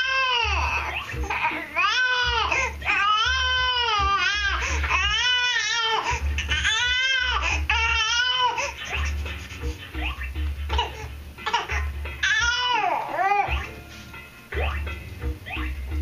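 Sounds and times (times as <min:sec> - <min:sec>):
infant crying: 0:00.0 - 0:09.1, 0:10.7 - 0:13.6.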